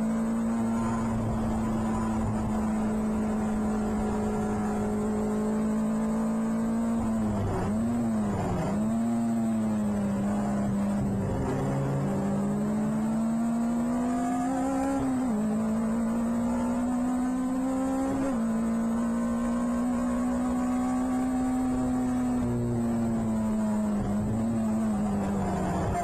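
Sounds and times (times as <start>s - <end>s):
race car engine high note: 24.0s - 26.0s.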